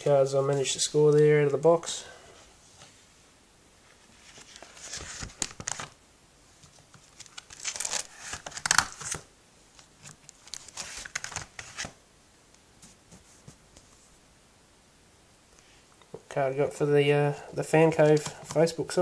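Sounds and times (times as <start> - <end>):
plastic pages crinkling: 4.0 - 6.0, 6.6 - 9.2, 9.8 - 12.0.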